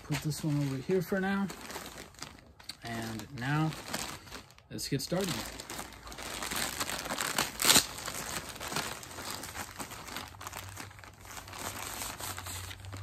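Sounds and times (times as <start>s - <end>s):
plastic bag tearing and crinkling: 0.0s - 13.0s.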